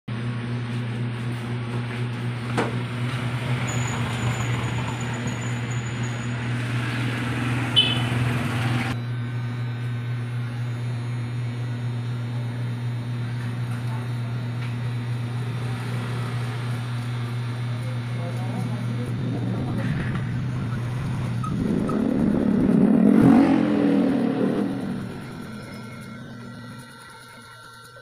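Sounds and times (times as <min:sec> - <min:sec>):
electric hair clippers humming: 0:05.8 - 0:19.3, 0:21.1 - 0:28.0.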